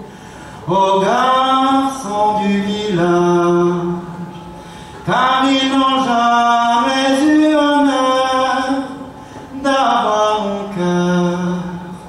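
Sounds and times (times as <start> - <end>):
breath: 0.0 - 0.6, 4.6 - 5.0, 9.2 - 9.6
man singing a cappella: 0.6 - 4.3, 5.0 - 12.0.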